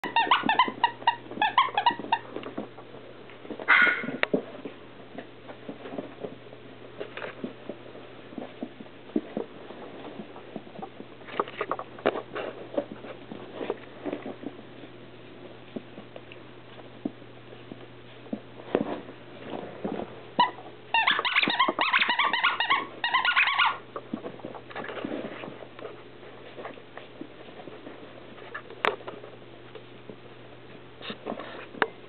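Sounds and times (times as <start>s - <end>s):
puppy yipping and squealing: 0.0s - 2.2s, 3.7s - 4.2s, 20.4s - 23.8s
paws and toy scuffling on carpet: 0.0s - 32.0s.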